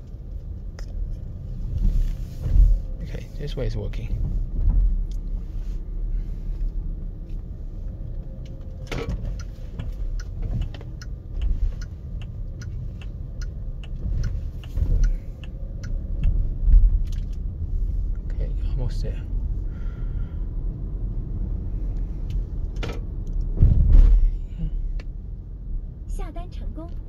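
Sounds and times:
turn signal ticking: 6.6 - 18.4
thump: 23.6 - 24.3.

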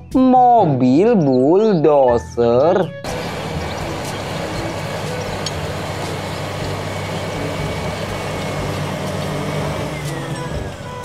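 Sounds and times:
bulldozer diesel engine running: 3.0 - 11.0.

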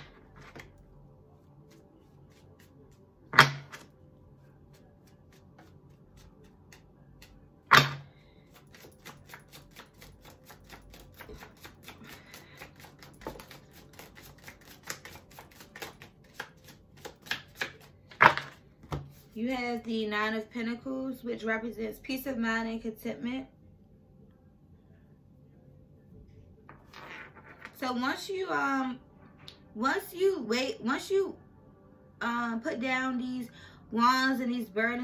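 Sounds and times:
cards being shuffled: 0.0 - 0.8, 1.7 - 3.9, 4.7 - 19.4.

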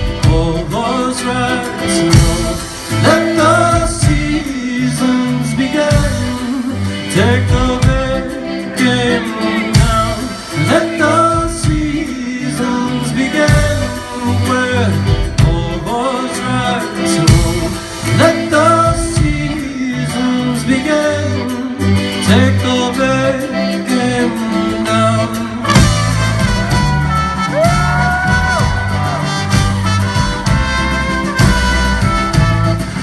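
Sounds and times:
man singing: 0.0 - 32.6
drums: 0.0 - 33.0
trumpet long held notes: 25.6 - 33.0.

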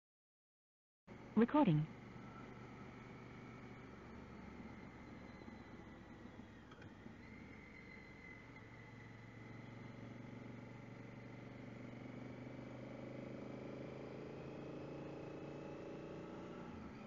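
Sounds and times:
motorcycle engine accelerating: 7.4 - 17.0.

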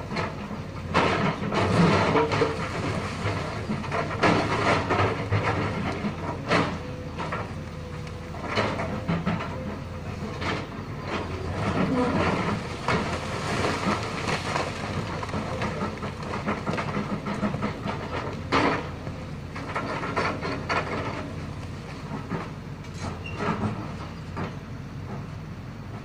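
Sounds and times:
excavator diesel engine under load: 0.0 - 26.0
bucket digging loose rock: 11.4 - 17.5.

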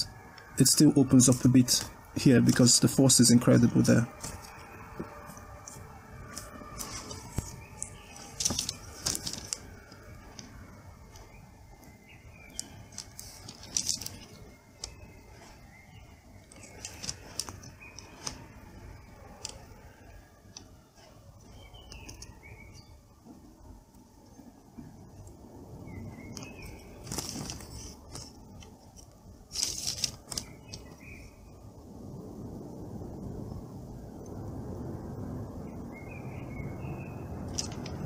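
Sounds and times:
faint bird chirps: 2.6 - 28.8.

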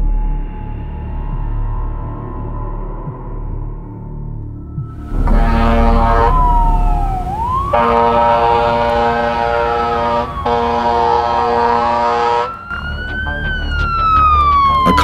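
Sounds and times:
fire engine siren wailing: 4.8 - 15.0
long horn blasts: 5.0 - 12.7.

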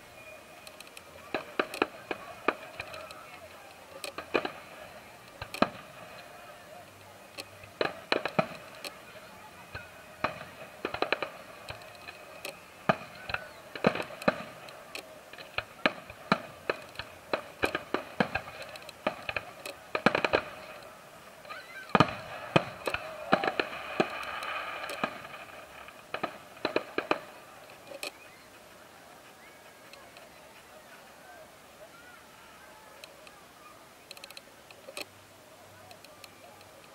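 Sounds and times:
firework shells bursting: 0.6 - 28.2.

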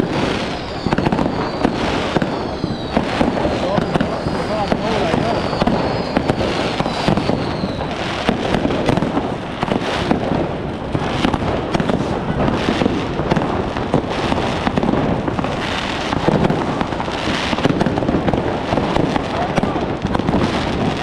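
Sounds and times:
fireworks bangs and crackles: 0.0 - 21.0
high whistle: 0.3 - 8.0.

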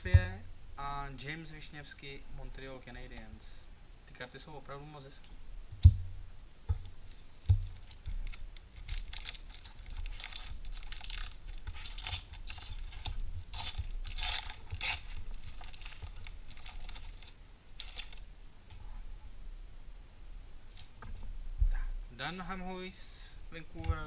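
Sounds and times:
soft thump: 5.7 - 6.8
foil wrapper tearing and crinkling: 7.6 - 18.2.

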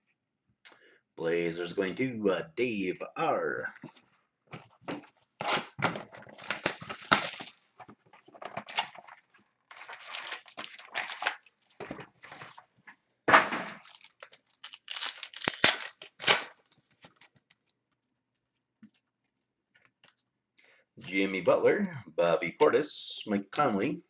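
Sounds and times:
wrapper tearing and crinkling: 5.4 - 7.6, 8.5 - 11.8, 13.6 - 16.7.

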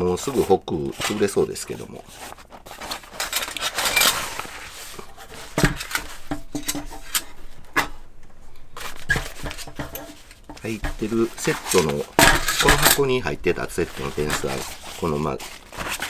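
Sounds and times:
fabric bag rustling: 0.2 - 6.3, 7.2 - 16.0
metal parts clinking: 3.2 - 4.3, 12.2 - 13.2.

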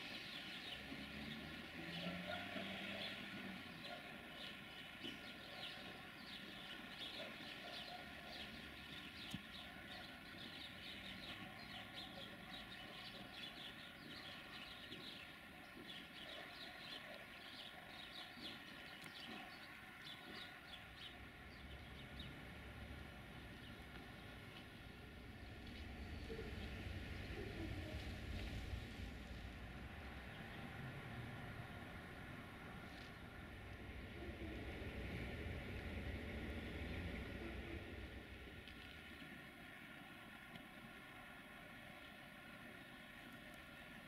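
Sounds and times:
small birds chirping: 0.0 - 22.5.

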